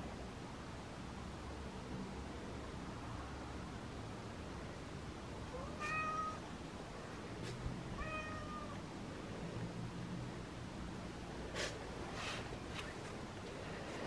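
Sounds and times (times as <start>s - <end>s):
cat meowing: 5.5s - 6.4s, 8.0s - 8.8s.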